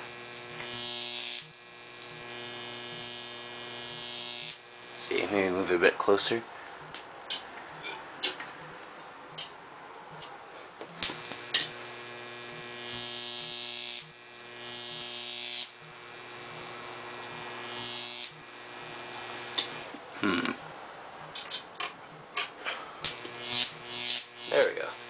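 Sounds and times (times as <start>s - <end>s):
electric arc snapping: 0.0s - 5.4s, 10.9s - 19.9s, 23.0s - 25.0s
hissing crackle of electric arc: 0.0s - 5.5s, 11.0s - 19.9s, 23.0s - 25.0s
electric arc buzzing: 0.0s - 5.8s, 10.9s - 20.0s, 23.0s - 25.0s.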